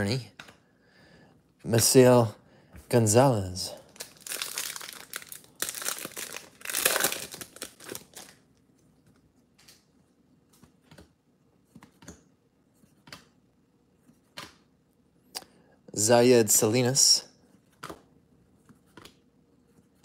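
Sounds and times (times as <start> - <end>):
foil wrapper crinkling and tearing: 3.9 - 8.4.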